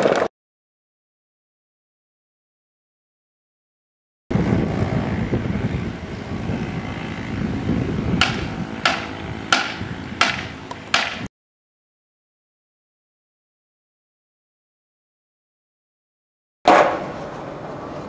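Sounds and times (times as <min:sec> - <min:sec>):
skateboard wheels rolling on paving: 0:00.0 - 0:00.3, 0:04.3 - 0:11.0, 0:16.7 - 0:18.0.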